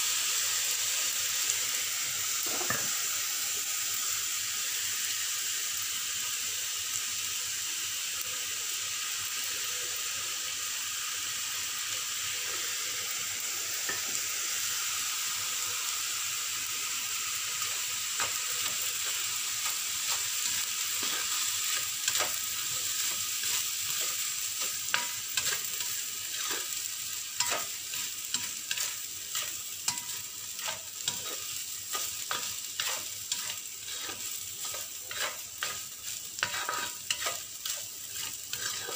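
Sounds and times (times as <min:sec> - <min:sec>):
rice sizzling in a wok: 0:00.0 - 0:38.9
spatula scraping and knocking a pan: 0:27.4 - 0:38.9.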